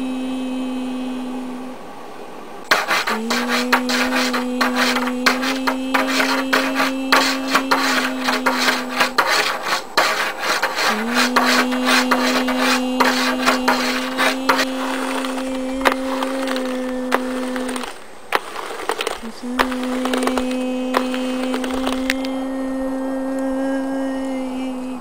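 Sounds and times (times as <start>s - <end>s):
hand scratching hard surface: 2.7s - 22.3s.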